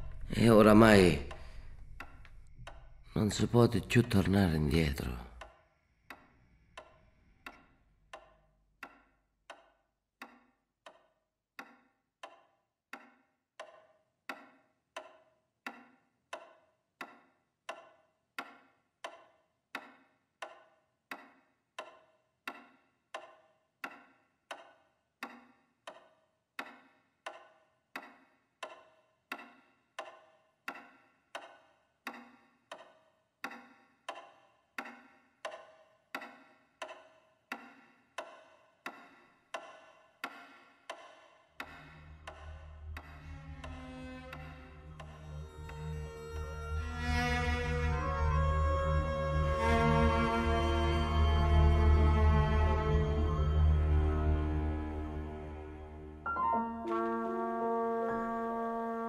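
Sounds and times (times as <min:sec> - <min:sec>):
clock ticking: 0:00.0 - 0:45.2.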